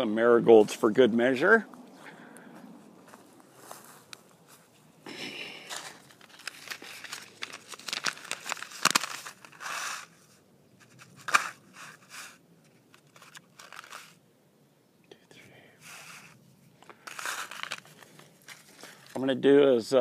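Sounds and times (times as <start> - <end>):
paper packet crinkling and tearing: 5.7 - 14.2, 15.9 - 19.3.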